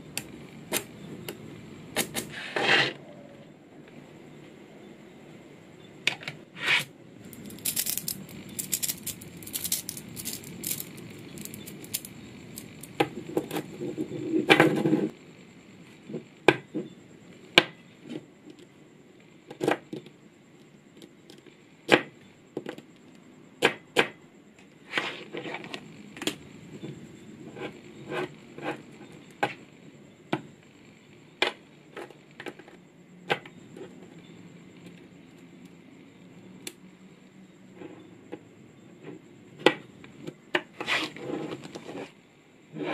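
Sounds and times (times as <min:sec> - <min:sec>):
rattling scrape of balls shifting: 0:02.0 - 0:03.1, 0:06.5 - 0:15.1, 0:40.7 - 0:42.9
magnetic balls clicking together: 0:07.2 - 0:13.2.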